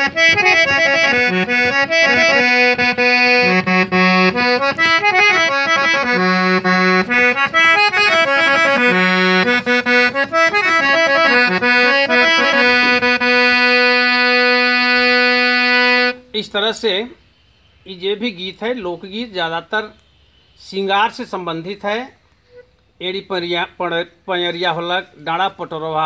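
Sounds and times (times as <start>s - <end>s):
free-reed keyboard folk melody: 0.0s - 16.4s.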